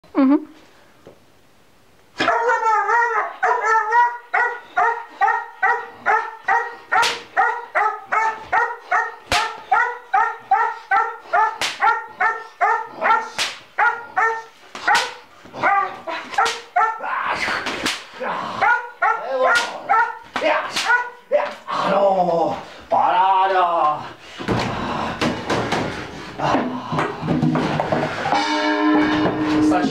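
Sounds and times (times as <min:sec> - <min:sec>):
young dog barking: 0:02.2 - 0:17.1, 0:18.6 - 0:21.6.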